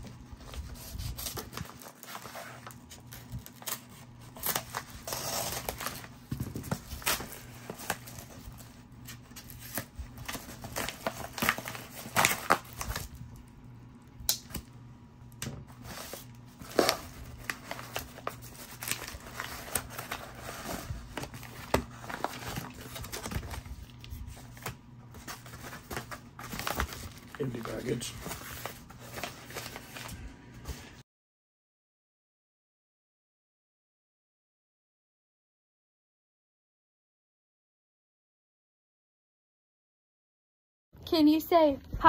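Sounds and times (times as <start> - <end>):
padded mailer and plastic crinkling: 0.1 - 13.5, 15.4 - 31.0.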